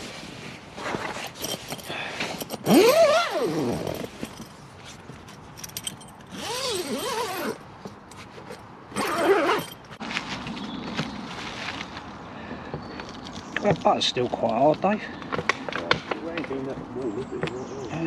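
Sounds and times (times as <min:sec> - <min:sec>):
sleeping bag rustling: 0:00.0 - 0:12.1.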